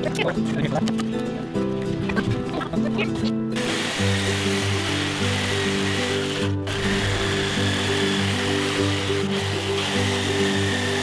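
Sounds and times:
background music: 0.0s - 11.0s
jigsaw cutting wood: 3.6s - 11.0s.

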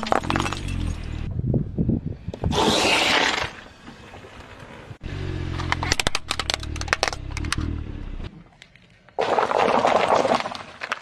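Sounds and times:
low car hum: 3.7s - 8.6s
paper cups crunching: 9.2s - 11.0s.

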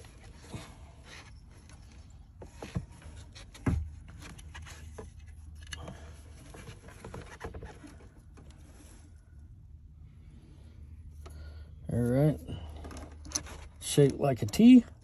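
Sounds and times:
hands rustling wires and plastic: 0.0s - 9.1s.

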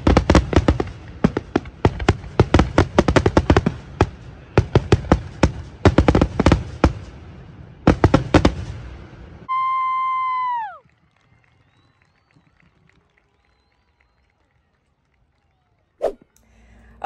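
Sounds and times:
fireworks bangs and crackles: 0.0s - 9.5s.

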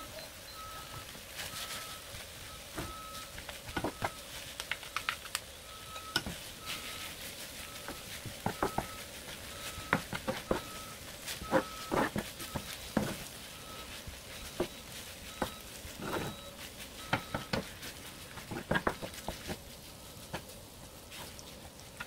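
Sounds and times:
wooden utensils scraping pan: 6.0s - 19.6s.

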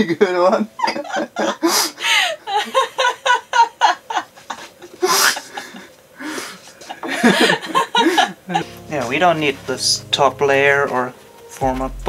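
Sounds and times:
people laughing: 0.5s - 9.1s.

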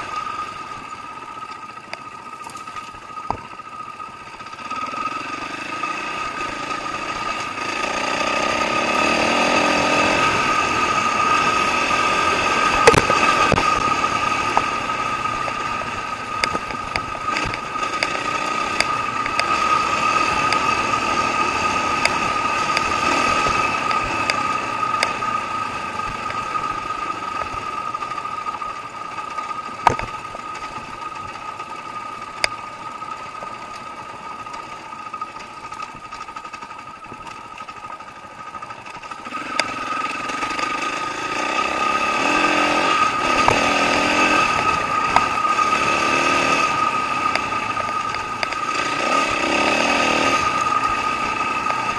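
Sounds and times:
dirt bike engine revving: 2.2s - 30.6s, 38.5s - 51.9s
bike knocks and rattles: 2.4s - 3.6s.

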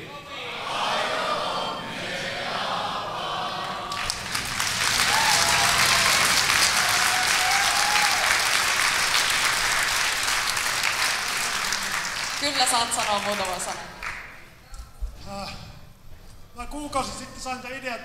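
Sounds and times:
audience applauding: 3.7s - 14.5s.

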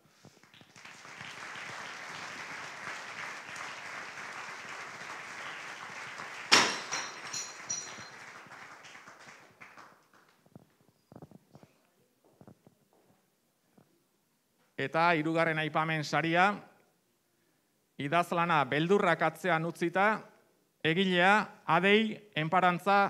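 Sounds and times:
audience applauding: 0.0s - 10.4s
sharp loud bang: 6.5s - 7.2s.

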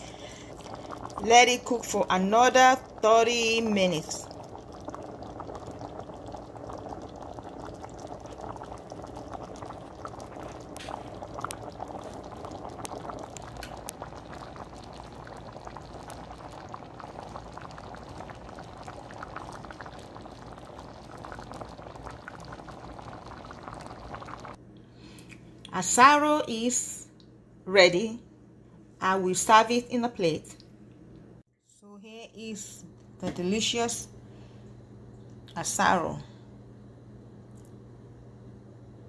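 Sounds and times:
porridge bubbling in a pot: 0.0s - 24.6s.

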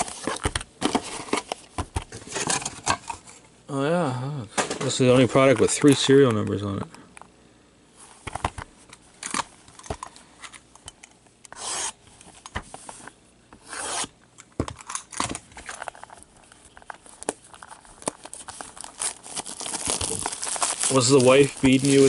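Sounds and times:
box cutter scraping swipes: 11.5s - 12.0s, 13.6s - 14.1s.

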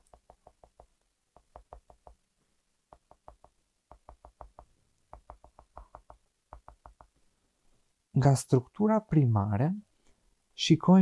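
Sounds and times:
stylus tapping on drawing tablet: 0.0s - 2.3s, 2.9s - 7.2s.

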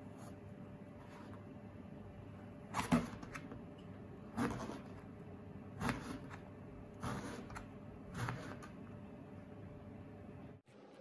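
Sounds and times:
knife cutting eggplant: 4.3s - 5.1s, 5.7s - 8.8s.

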